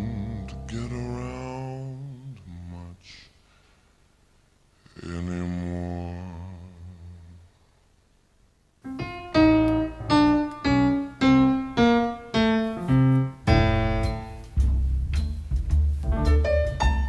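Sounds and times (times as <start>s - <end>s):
slow piano music: 8.9s - 17.0s.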